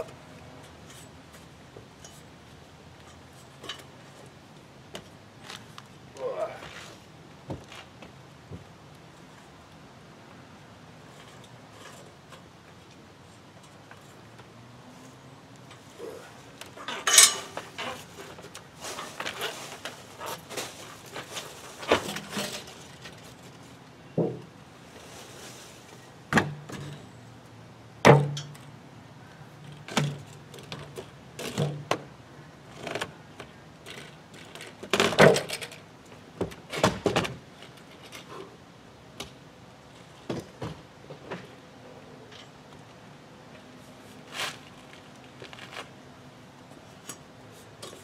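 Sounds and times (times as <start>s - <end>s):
boots and hands on metal rungs: 0.0s - 6.9s, 11.0s - 14.5s, 15.6s - 23.5s
metallic clanks on steel tower: 16.8s - 18.0s.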